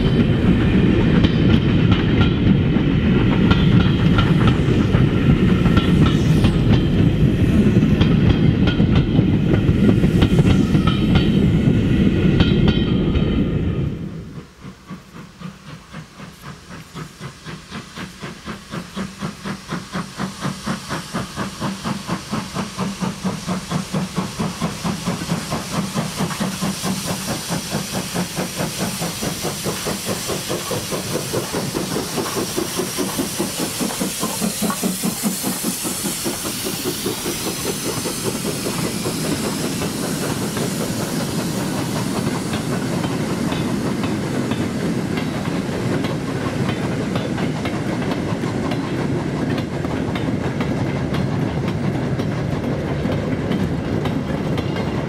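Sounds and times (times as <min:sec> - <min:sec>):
train coaches clattering over rails: 0:00.0 - 0:04.7, 0:21.3 - 0:55.0
steam hissing: 0:00.0 - 0:55.0
steam locomotive exhaust chuffs: 0:00.0 - 0:55.0.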